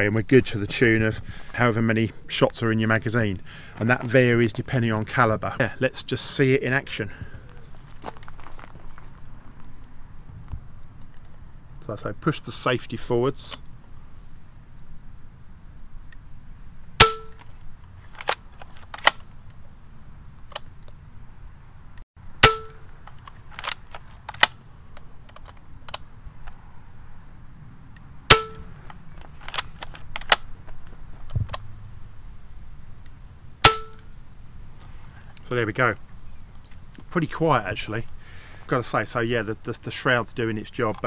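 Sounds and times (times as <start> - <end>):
rifle lever clicks: 23.0 - 24.6, 29.4 - 30.5.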